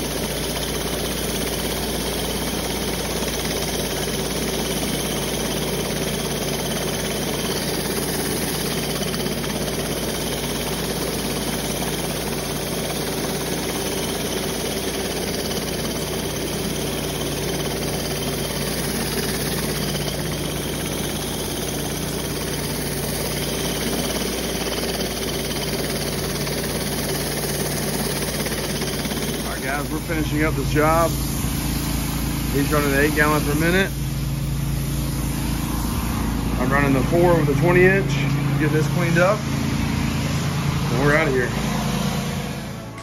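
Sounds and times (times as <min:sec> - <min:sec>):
engine running: 0:00.0 - 0:43.0
pressure washer spray hissing: 0:25.7 - 0:35.8.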